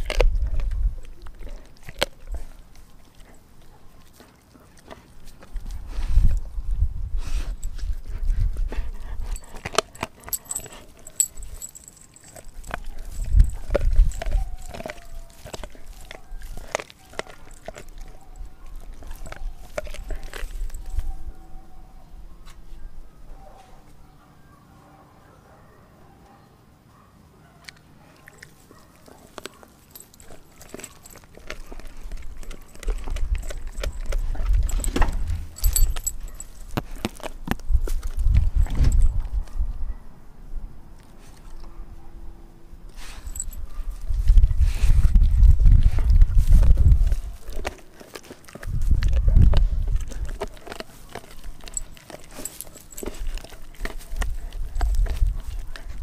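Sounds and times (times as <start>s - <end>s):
dog crunching on bone: 0.0s - 6.5s, 7.3s - 21.2s, 27.6s - 39.5s, 42.9s - 56.0s
collar tag jingling: 7.3s - 21.2s, 28.4s - 39.5s, 42.9s - 44.4s, 46.7s - 56.0s.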